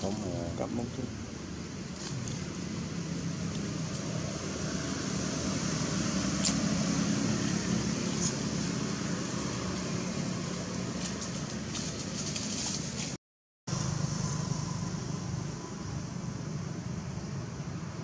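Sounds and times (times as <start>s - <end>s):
low rumble and hiss: 0.0s - 4.6s, 13.7s - 18.0s.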